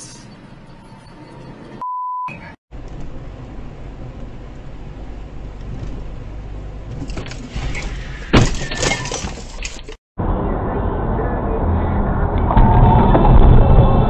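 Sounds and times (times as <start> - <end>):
car road and engine rumble: 2.7 - 14.0
loud car crash: 11.9 - 14.0.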